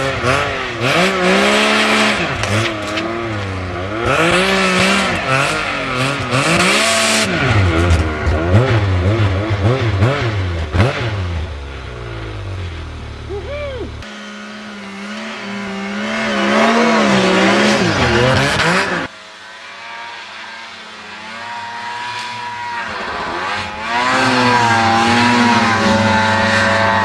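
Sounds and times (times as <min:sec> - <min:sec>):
snowmobile engines revving: 0:00.0 - 0:27.0.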